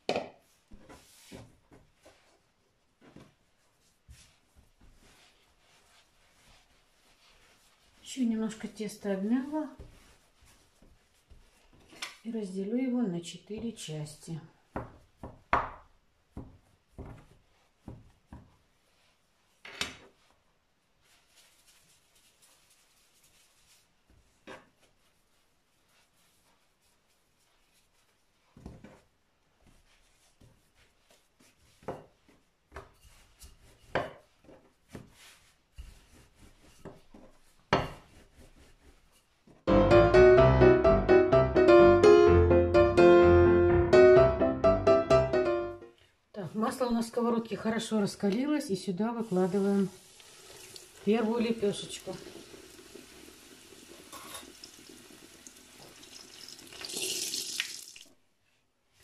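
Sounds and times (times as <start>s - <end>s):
dough rubbing and rolling: 0.1s - 12.4s, 14.6s - 40.2s, 46.5s - 56.5s
piano music: 39.7s - 45.9s
bread sizzling in hot oil: 49.4s - 58.1s.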